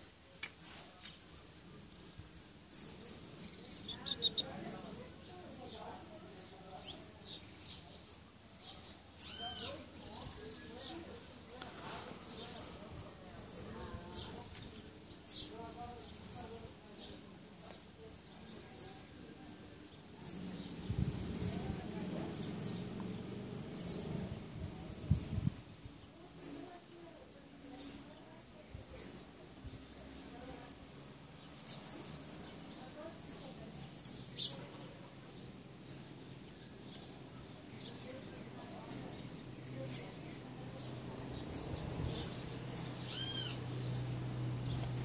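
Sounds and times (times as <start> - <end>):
lower bird chirp: 0.0 - 45.0
bird high call notes: 43.0 - 43.6.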